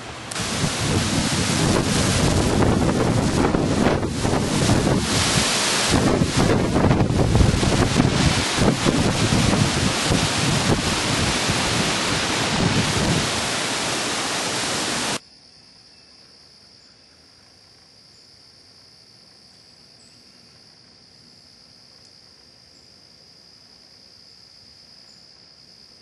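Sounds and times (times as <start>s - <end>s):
strong gusty wind on microphone: 0.0s - 15.2s.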